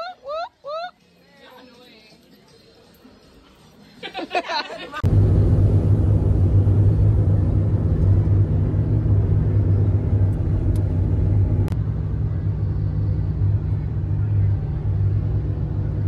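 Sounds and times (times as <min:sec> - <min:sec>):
vehicle engine rumbling: 0:05.0 - 0:16.0.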